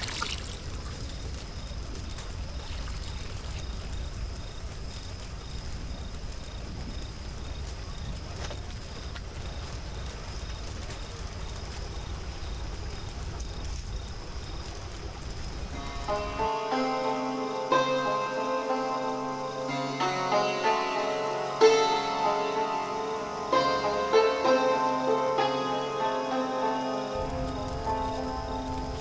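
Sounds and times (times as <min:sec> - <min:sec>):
wood crackles and knocks: 0:00.0 - 0:16.8, 0:26.8 - 0:29.0
night insects chirping: 0:00.0 - 0:29.0
wood fire burning: 0:00.0 - 0:29.0.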